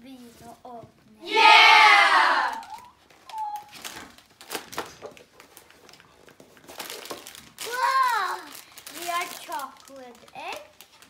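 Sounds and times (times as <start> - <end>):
packet rustling: 2.7 - 11.0.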